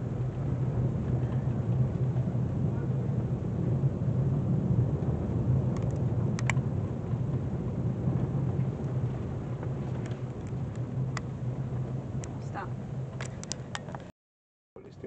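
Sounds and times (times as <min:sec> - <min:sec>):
car engine and road noise: 0:00.0 - 0:14.1.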